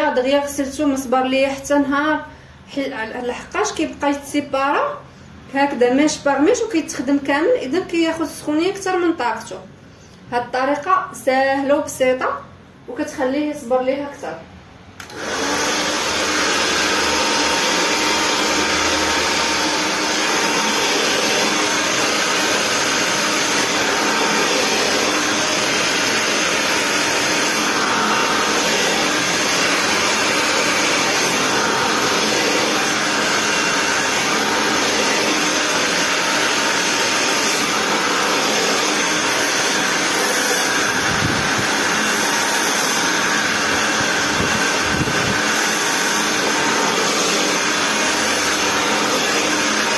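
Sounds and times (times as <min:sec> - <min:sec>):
hair dryer blowing: 0:15.0 - 0:49.9.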